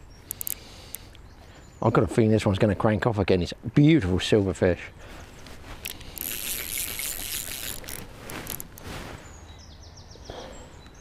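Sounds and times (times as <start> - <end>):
fly reel ratchet clicking: 0.3 - 1.0, 5.8 - 8.8.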